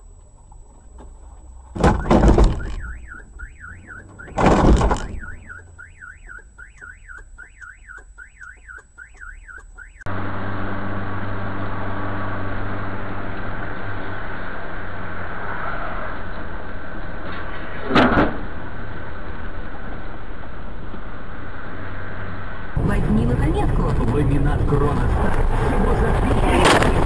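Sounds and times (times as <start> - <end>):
vehicle road noise and engine hum: 0.0 - 27.0
car alarm wailing: 1.8 - 10.1.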